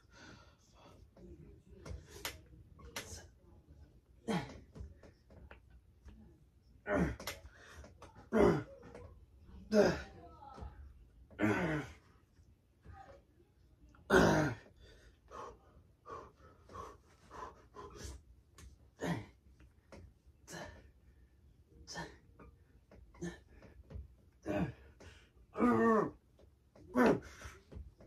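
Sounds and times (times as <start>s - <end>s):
man grunting: 4.2s - 4.7s, 6.8s - 7.4s, 8.3s - 8.7s, 9.7s - 10.1s, 11.4s - 12.0s, 14.1s - 14.7s, 19.0s - 19.4s, 21.9s - 22.2s, 23.2s - 23.6s, 24.4s - 24.9s, 25.5s - 26.2s, 26.9s - 27.6s
man breathing hard: 14.7s - 18.3s.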